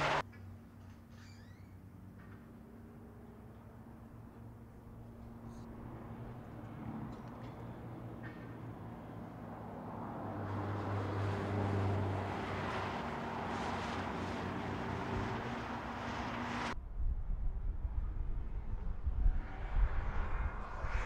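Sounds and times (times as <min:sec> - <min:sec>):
cars driving past: 0:00.0 - 0:00.2, 0:01.9 - 0:16.8
low rumble: 0:16.7 - 0:21.0.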